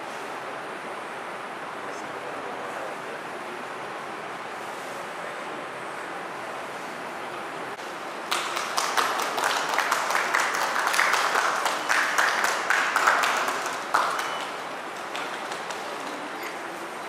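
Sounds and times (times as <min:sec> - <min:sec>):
small group clapping: 0:08.1 - 0:17.0.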